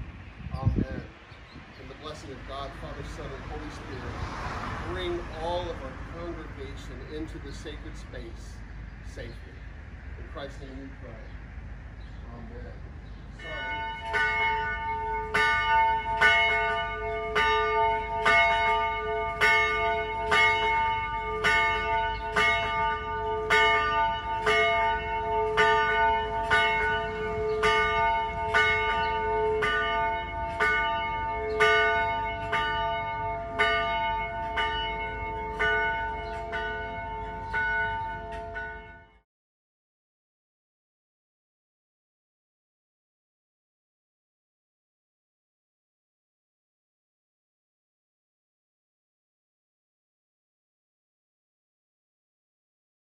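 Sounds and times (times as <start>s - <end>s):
church bell ringing: 2.0s - 8.0s, 13.4s - 39.2s.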